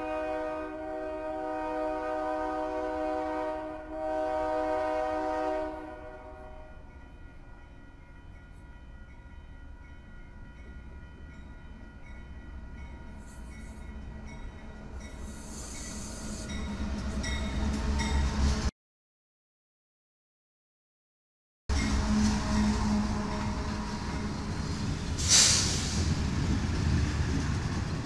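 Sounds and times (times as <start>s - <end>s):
locomotive air horn chord: 0.0s - 6.9s, 21.7s - 24.6s
train rumbling past: 0.0s - 18.7s, 21.7s - 28.0s
crossing bell ringing: 6.4s - 18.5s, 21.7s - 24.6s.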